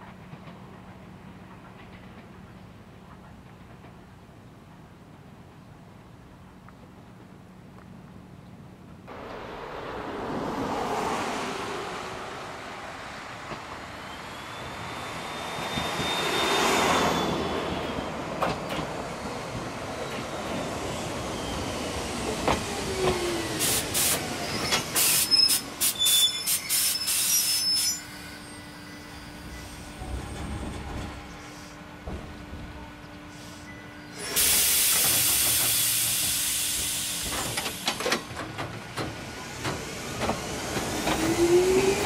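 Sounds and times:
electric train braking: 13.4 - 31.8, 33.3 - 38.3
wheel and brake squeals: 13.9 - 18.9, 24.1 - 31.8.

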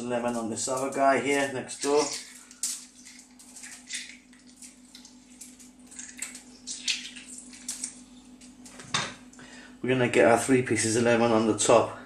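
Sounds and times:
juice dripping onto foil: 0.2 - 9.4.

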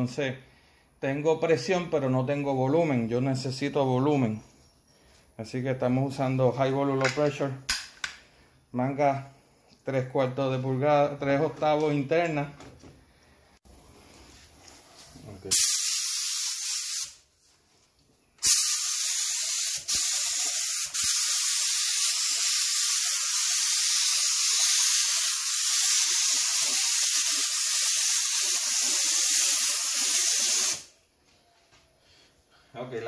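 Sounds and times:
spray gun air hiss: 15.5 - 17.2, 18.4 - 31.0.

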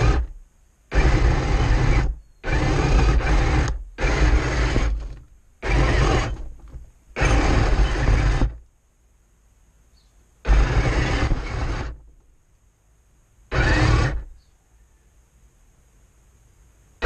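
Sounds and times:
model tank motors and tracks: 0.0 - 0.3, 0.9 - 8.6, 10.4 - 12.0, 13.5 - 14.3.

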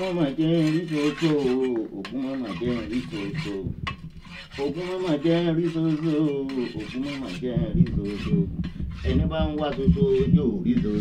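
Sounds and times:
machete scraping on concrete: 0.0 - 11.0.

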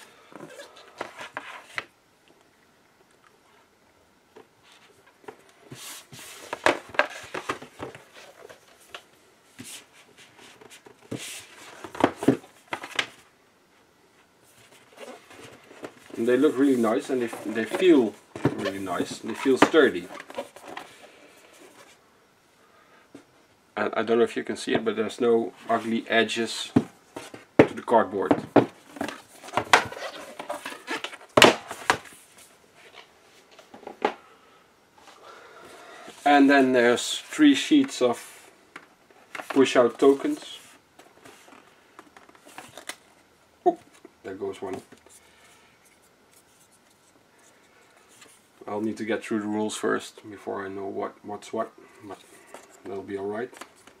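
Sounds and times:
cardboard boards knocking and scraping: 15.0 - 20.8, 26.7 - 32.1
rustling: 25.4 - 33.8
cardboard boards tapping and knocking: 26.7 - 29.9.

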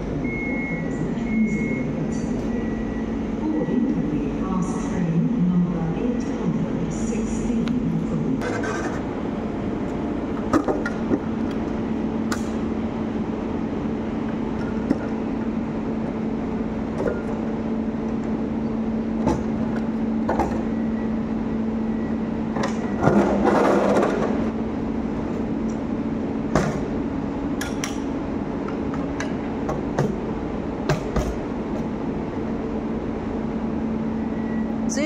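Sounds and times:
standing train hum: 0.0 - 35.0.

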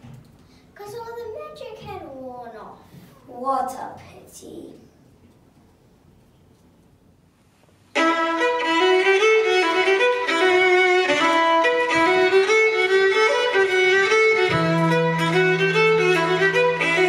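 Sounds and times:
fiddle dance tune: 7.9 - 17.0.

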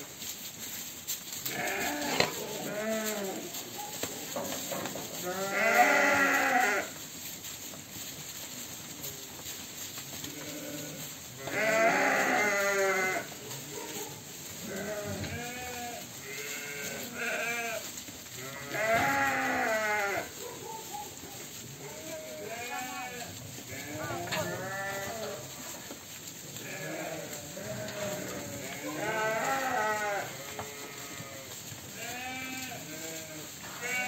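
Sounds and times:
ewes bleating: 26.6 - 31.4.

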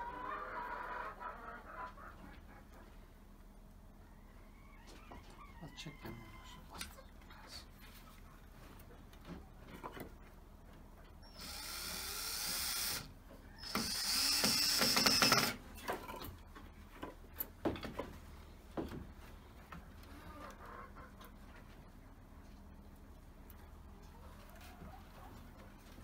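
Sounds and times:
cordless drill whining: 11.4 - 15.6
clicks and knocks on wood: 17.0 - 18.2.

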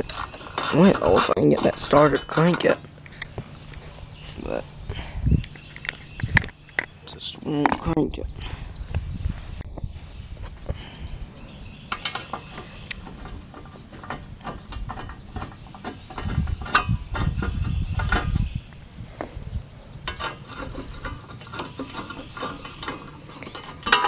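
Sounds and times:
metallic clicks and rattles: 20.0 - 24.0.

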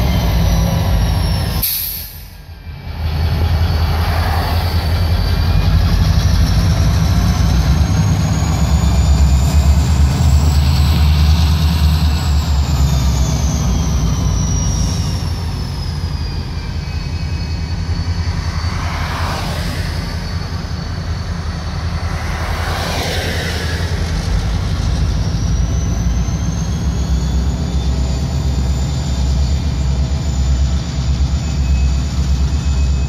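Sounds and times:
diesel locomotives rumbling: 0.0 - 33.0
faint high whine: 12.0 - 33.0
car passing on road: 17.4 - 25.4.

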